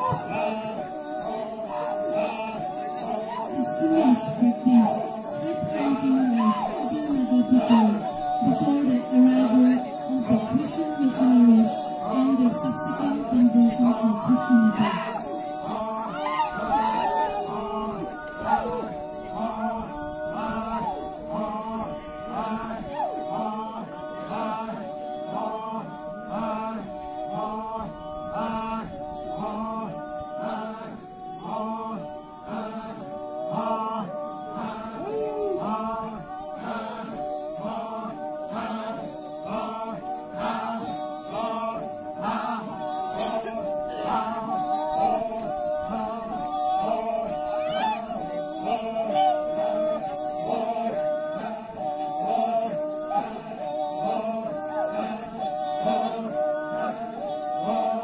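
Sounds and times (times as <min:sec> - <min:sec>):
men chanting in unison: 0:00.0 - 0:58.0.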